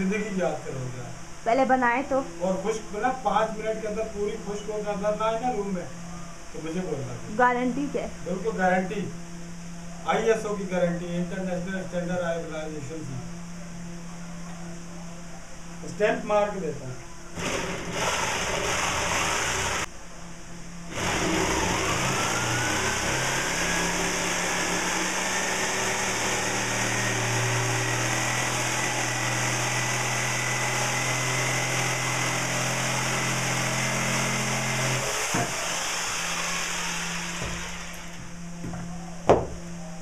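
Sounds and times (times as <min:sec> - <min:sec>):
jigsaw sawing wood: 0:17.4 - 0:19.9, 0:20.9 - 0:38.2.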